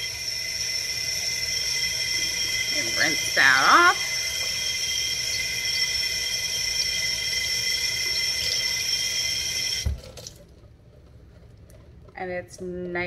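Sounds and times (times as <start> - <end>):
tap water streaming into sink: 1.7 - 10.6.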